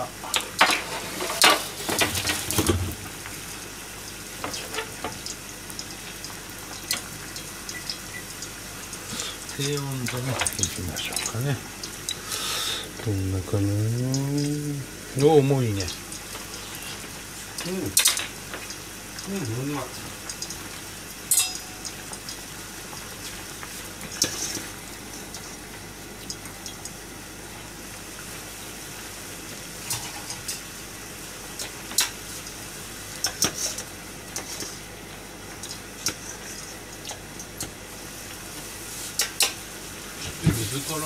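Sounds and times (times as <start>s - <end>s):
water boiling and bubbling: 0.0s - 41.0s
metal utensil clinking on pot: 21.3s - 22.0s.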